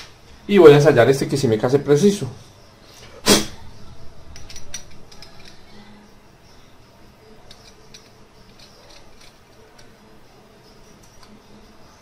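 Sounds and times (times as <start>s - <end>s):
sharp knock: 3.2s - 3.6s
light clicks and scrapes of parts: 4.3s - 5.9s, 7.4s - 10.1s.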